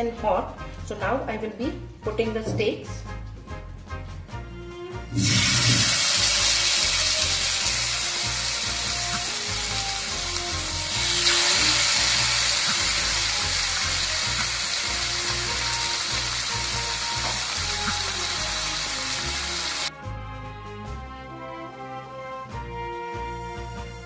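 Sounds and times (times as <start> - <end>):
background music: 0.0 - 24.0
steaks sizzling in oil: 5.2 - 19.9.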